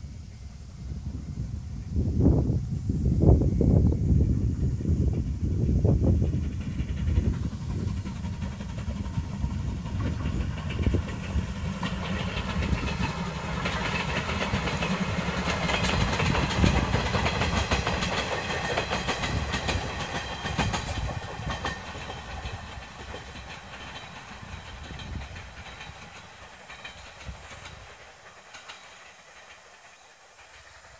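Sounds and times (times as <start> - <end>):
steam train passing: 0.0 - 30.9
wheels clattering over rail joints: 6.1 - 30.9.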